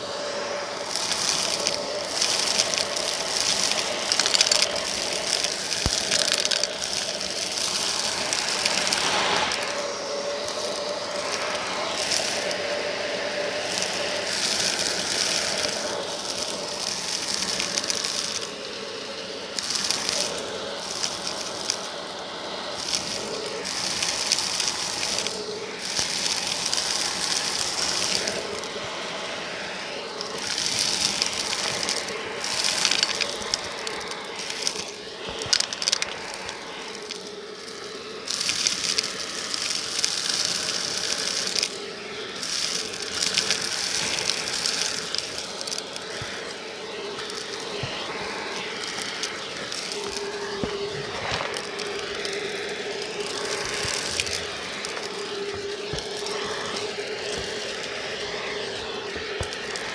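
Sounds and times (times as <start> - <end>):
stick vacuum running: 0.0 - 59.9
debris rattling up vacuum tube: 0.8 - 12.7, 13.6 - 18.8, 19.4 - 28.8, 30.0 - 59.9.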